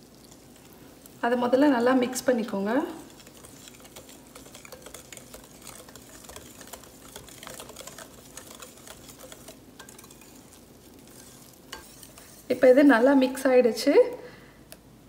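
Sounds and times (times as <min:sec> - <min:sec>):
soft wet batter sound: 0:00.0 - 0:14.8
whisk clicking on glass bowl: 0:02.1 - 0:13.0.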